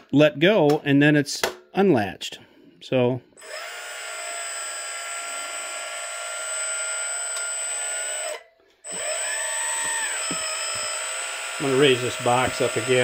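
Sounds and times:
hydraulic pump whining: 0:03.4 - 0:13.0.

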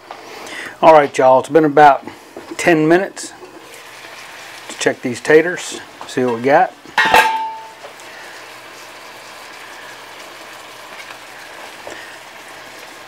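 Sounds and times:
liquid simmering in a wok: 0:03.3 - 0:04.9, 0:05.8 - 0:13.0.

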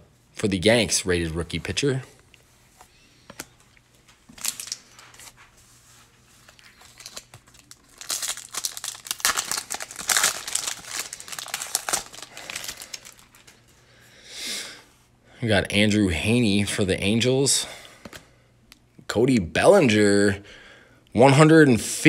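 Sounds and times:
foil wrapper crinkling: 0:04.3 - 0:05.4, 0:06.4 - 0:13.7.

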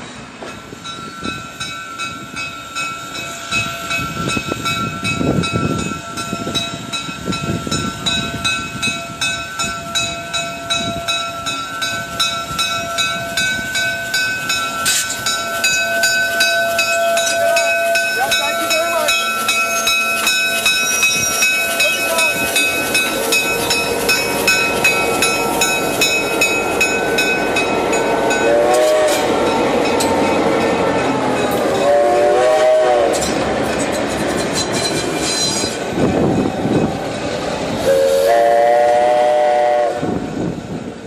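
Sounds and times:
locomotive bell ringing: 0:00.0 - 0:38.8
diesel locomotive passing: 0:00.0 - 0:41.0
locomotive horn blasts: 0:28.4 - 0:29.4, 0:31.7 - 0:33.3, 0:37.8 - 0:40.2.

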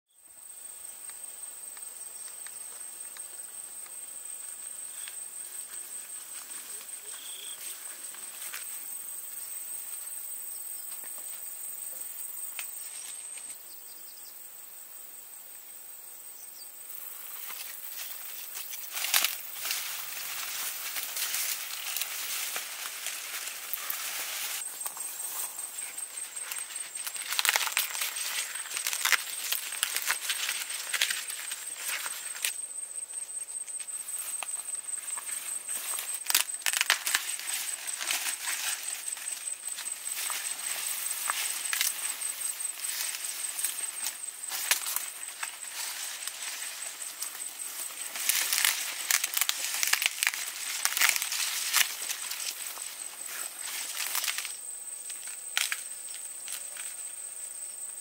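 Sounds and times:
high insect trill: 0:00.1 - 0:58.0
dry plant material rustling: 0:17.1 - 0:32.6, 0:34.1 - 0:55.8.

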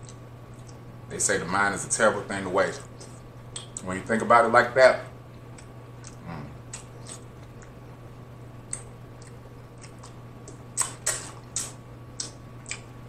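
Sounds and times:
wet lip smacks: 0:03.0 - 0:03.8, 0:08.7 - 0:12.9.

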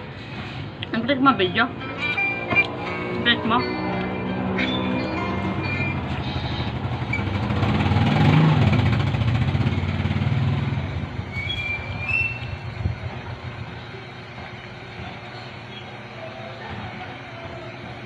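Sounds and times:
vehicle engine rumble passing: 0:00.0 - 0:18.0.

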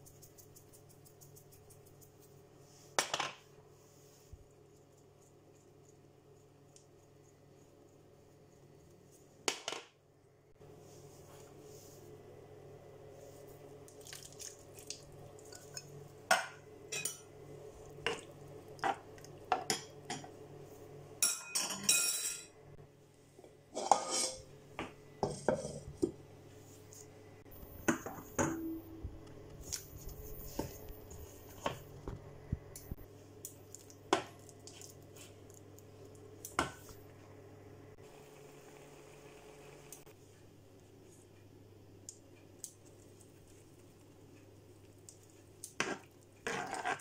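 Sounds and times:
cookware clattering and scraping: 0:21.2 - 0:22.5, 0:23.7 - 0:24.5, 0:25.2 - 0:26.1
cookware clinking and knocking: 0:21.2 - 0:22.5
faint low hum: 0:21.9 - 0:46.4.

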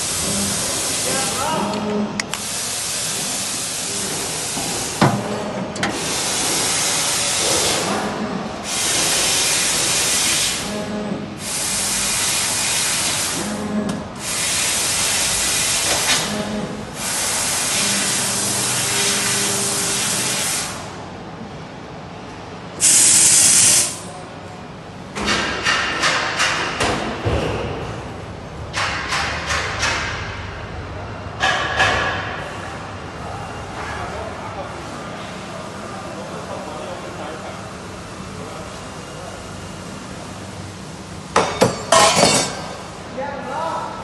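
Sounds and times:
laser cutter hissing assist gas: 0:11.4 - 0:13.6, 0:14.2 - 0:16.3, 0:16.9 - 0:20.9, 0:22.8 - 0:24.0
loud blast of gas: 0:22.8 - 0:24.0.

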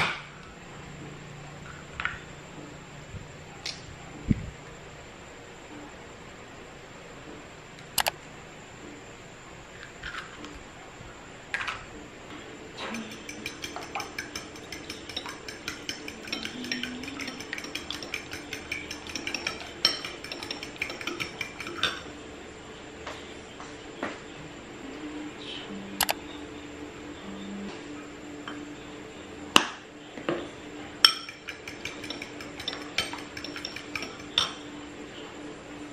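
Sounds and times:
spoon clinking against bowl: 0:12.8 - 0:22.1, 0:31.0 - 0:34.7.

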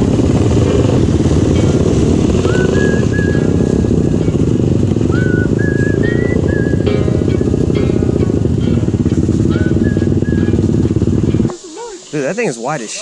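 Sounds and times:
quad engine idling: 0:00.0 - 0:13.0
person whistling: 0:02.4 - 0:03.8, 0:05.0 - 0:06.9, 0:09.5 - 0:10.6.

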